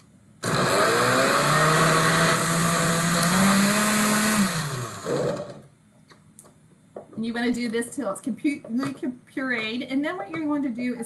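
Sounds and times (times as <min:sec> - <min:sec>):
blender motor whining: 0:00.4 - 0:05.6.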